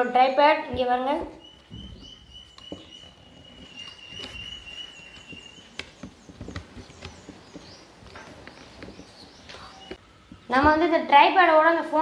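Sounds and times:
faint high chirps: 1.3s - 7.9s.

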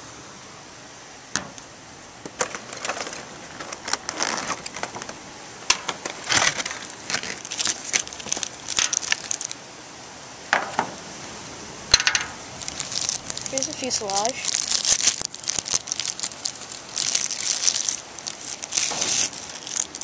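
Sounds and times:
steady background hiss: 0.0s - 20.0s
plastic packaging crinkling: 2.4s - 5.2s, 5.8s - 9.6s, 12.4s - 20.0s.

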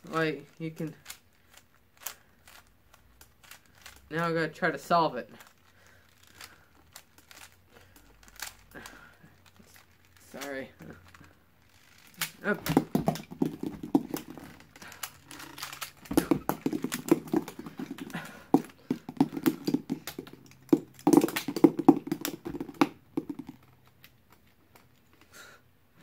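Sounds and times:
puzzle cube plastic clicking: 11.2s - 25.0s.

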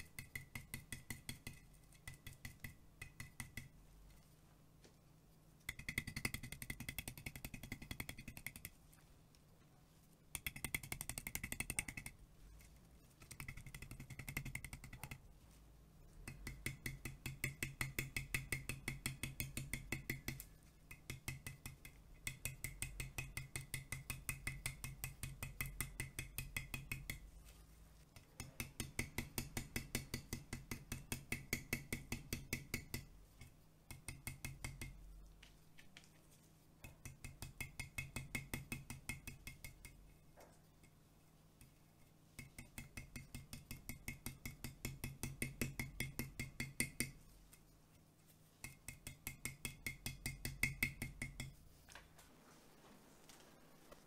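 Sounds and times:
stencil brush dabbing taps: 0.0s - 4.2s, 10.3s - 15.2s, 36.8s - 41.0s, 41.6s - 47.6s.

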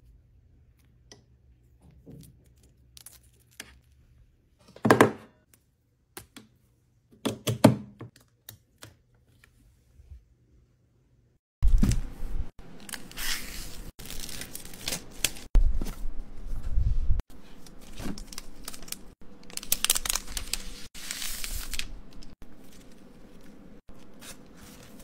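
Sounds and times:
wrap sheet crinkling and tearing: 12.8s - 15.6s, 17.6s - 25.0s.

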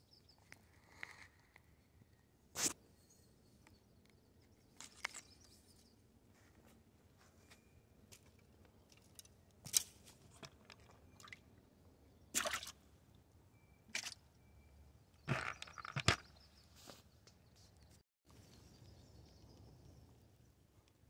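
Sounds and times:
water splashing in bucket: 12.4s - 12.8s.

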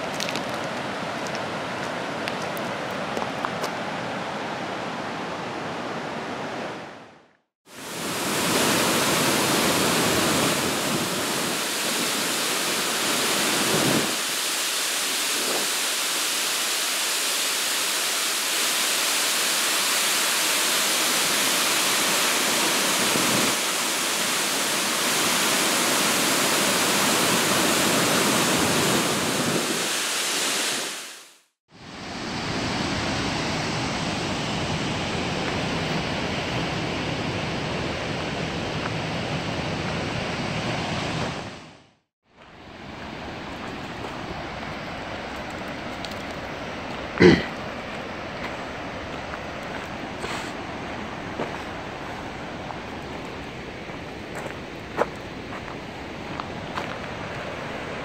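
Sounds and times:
waterfall roaring: 0.0s - 7.0s, 7.7s - 31.3s, 42.6s - 58.0s.

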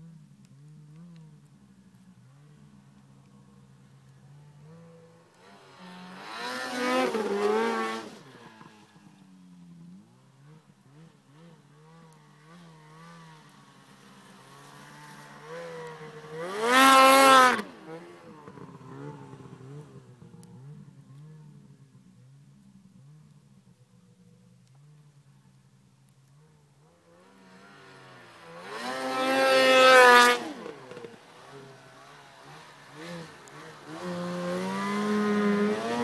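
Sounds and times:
atv engine revving: 4.3s - 21.6s, 26.8s - 36.0s.

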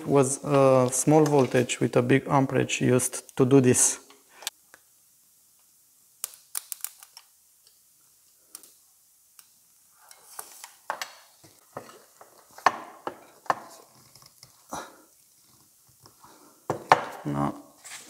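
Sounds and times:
rustling: 17.7s - 18.0s.

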